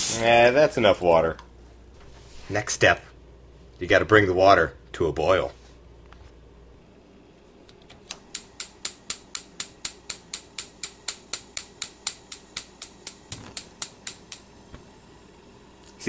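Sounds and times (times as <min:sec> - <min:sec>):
spark igniter clicking: 0:08.0 - 0:14.5.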